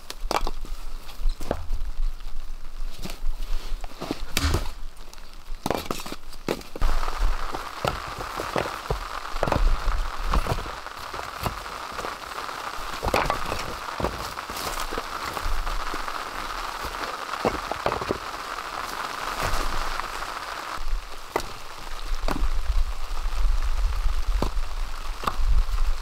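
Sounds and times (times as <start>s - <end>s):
rain on a tarp: 0.0s - 26.0s
firewood knocking and clacking: 13.0s - 15.6s.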